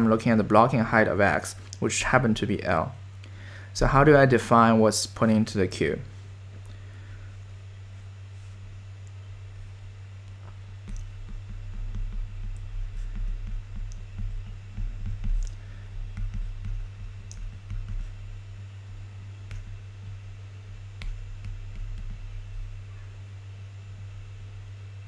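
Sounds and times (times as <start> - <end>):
low electrical hum: 0.0 - 25.0
soft low bumps: 8.4 - 24.6
stylus tapping on screen: 10.2 - 18.5, 19.4 - 22.9.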